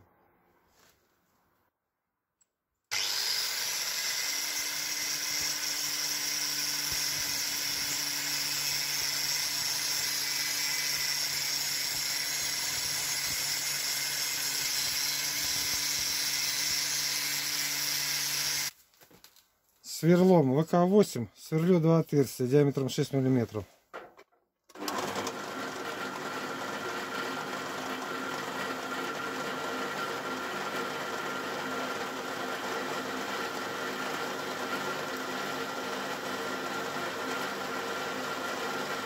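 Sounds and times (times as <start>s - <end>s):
angle grinder grinding steel: 2.9s - 18.7s.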